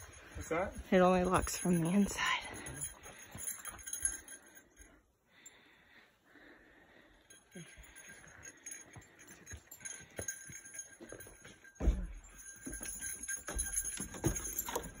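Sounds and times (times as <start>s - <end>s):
small bell jingling: 0.0s - 5.7s, 6.8s - 15.0s
dull thuds of footfalls: 11.7s - 12.5s.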